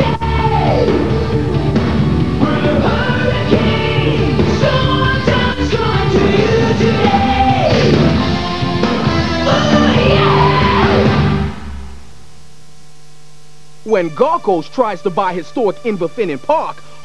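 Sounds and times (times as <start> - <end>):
rock song with sung vocals: 0.0 - 11.7.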